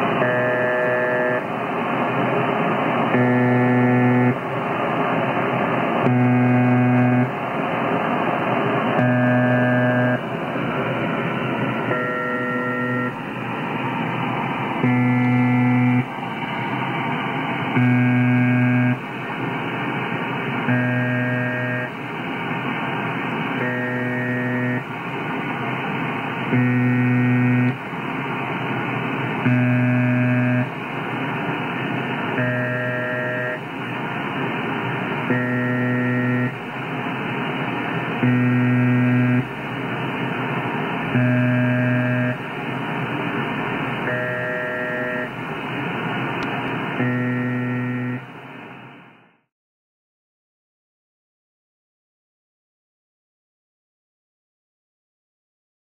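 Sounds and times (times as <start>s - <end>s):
low rough buzz: 0.0s - 16.3s, 17.6s - 19.2s, 20.6s - 21.9s, 23.6s - 24.9s, 26.5s - 27.8s, 29.4s - 30.7s, 35.2s - 36.8s, 38.2s - 39.8s, 41.1s - 42.5s, 46.4s - 48.3s
muffled radio hiss: 12.5s - 14.9s, 15.5s - 17.8s, 18.9s - 20.7s, 21.4s - 38.2s, 39.4s - 41.2s, 42.3s - 44.0s, 44.7s - 47.0s.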